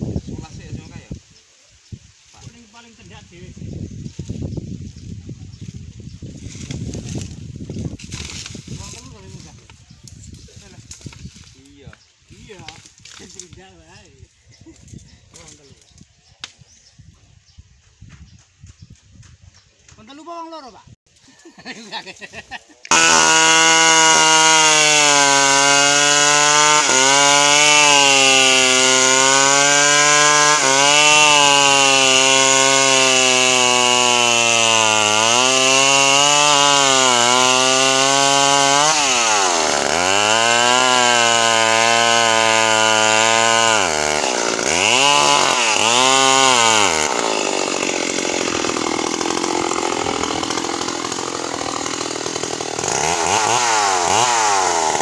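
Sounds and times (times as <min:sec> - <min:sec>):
chainsaw cutting log: 0:06.5 - 0:11.7, 0:22.9 - 0:55.0.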